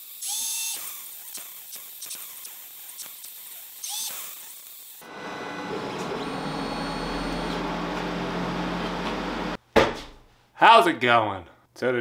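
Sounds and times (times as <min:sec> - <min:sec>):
welder humming and hissing: 0:00.0 - 0:09.6.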